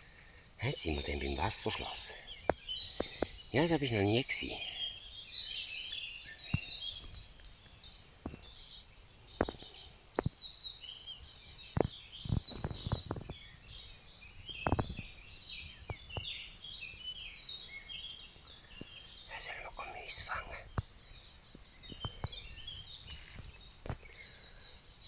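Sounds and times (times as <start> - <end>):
birds chirping: 0.0 - 25.0
footsteps on dry twigs: 21.5 - 24.1.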